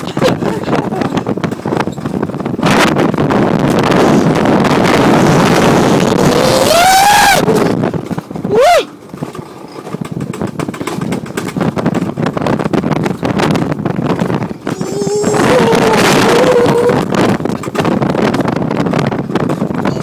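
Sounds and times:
coaster sled running on rails: 0.0s - 20.0s
wind on microphone: 0.0s - 20.0s
person whooping: 6.2s - 7.6s, 8.5s - 8.9s, 14.7s - 17.1s
person yelping: 14.7s - 17.0s.

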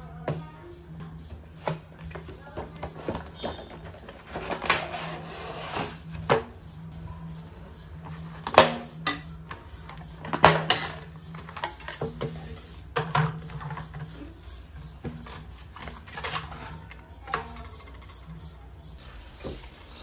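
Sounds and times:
cardboard rustling and scraping: 2.1s - 6.4s.

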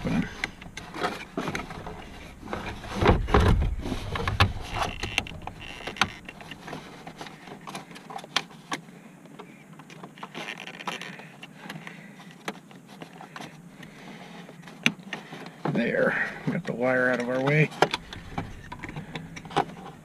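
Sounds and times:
heavy low knocks: 0.0s - 6.7s, 17.9s - 19.8s.

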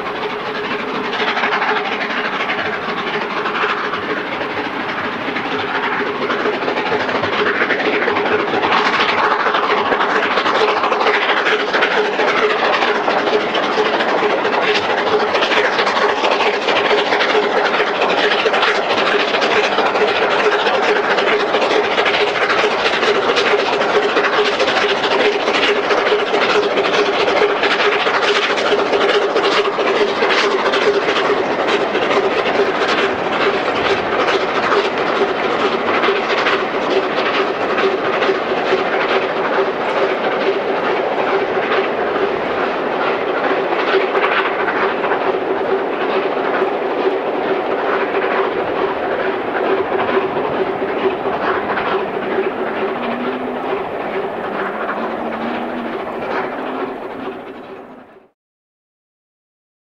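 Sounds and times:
wheels clicking over rails: 0.0s - 58.3s
train running: 0.0s - 58.4s
steady hum: 49.8s - 58.3s.

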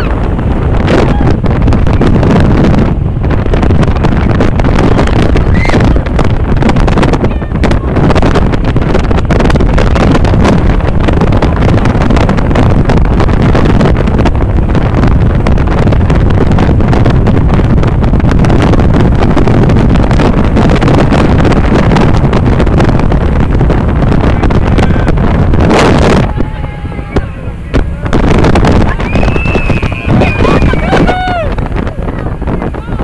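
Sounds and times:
boat engines droning: 0.0s - 33.0s
water rushing past hull: 0.0s - 33.0s
wind buffeting microphone: 0.0s - 33.0s.

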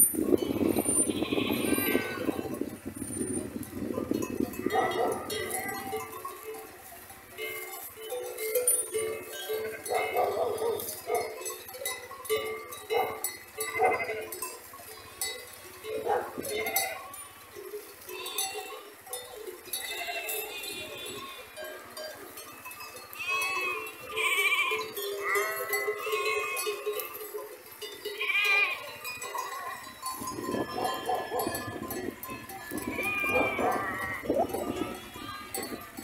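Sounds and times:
sheep bleating: 1.0s - 2.3s, 13.6s - 14.4s, 19.8s - 21.5s, 23.2s - 26.8s, 28.2s - 28.9s, 32.6s - 35.8s.

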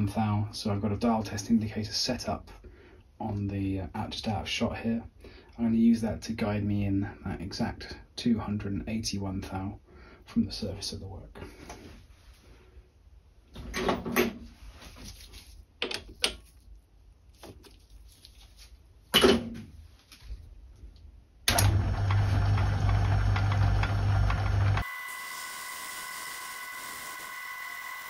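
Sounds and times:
clicks and knocks of hand work: 15.8s - 16.6s
lathe running with steady hum: 21.5s - 28.0s
high-toned machine whine: 24.8s - 28.0s.

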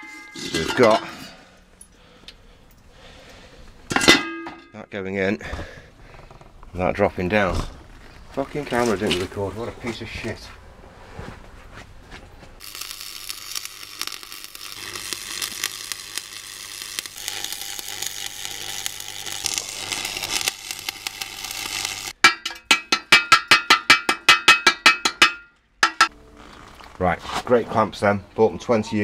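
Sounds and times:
arc welder crackling: 12.6s - 25.2s
hammer chipping metal: 15.0s - 26.1s.

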